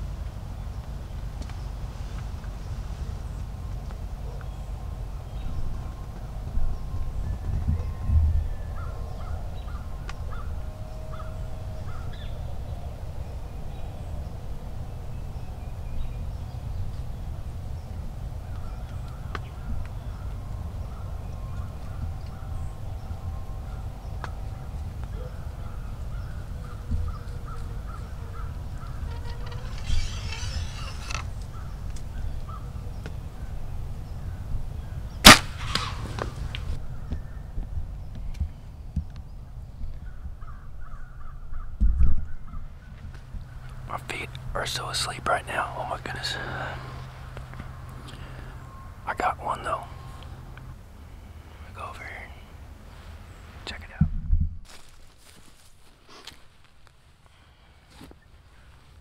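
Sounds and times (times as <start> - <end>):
bird calls: 3.1 - 54.0
crow cawing: 8.8 - 12.3
bow shot snap: 29.2 - 31.3, 35.2 - 36.7.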